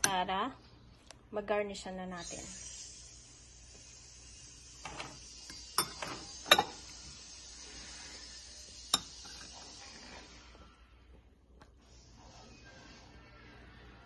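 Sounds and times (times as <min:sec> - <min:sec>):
fork scraping: 0:04.8 - 0:09.9
fork clinking on ceramic bowl: 0:05.8 - 0:06.8, 0:08.9 - 0:09.5.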